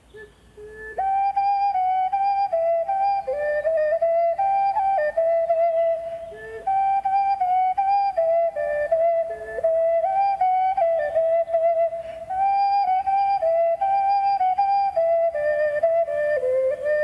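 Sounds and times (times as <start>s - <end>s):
wooden flute playing slow melody: 0.0s - 17.0s.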